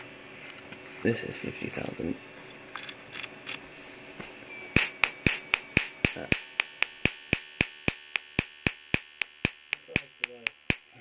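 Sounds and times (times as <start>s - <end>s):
electric sparks snapping: 4.8s - 11.0s.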